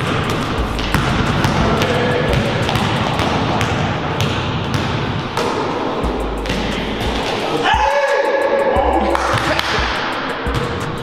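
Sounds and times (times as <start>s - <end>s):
background music with a beat: 0.0s - 3.4s, 5.4s - 11.0s
basketball dribbling on wooden floor: 0.0s - 7.3s.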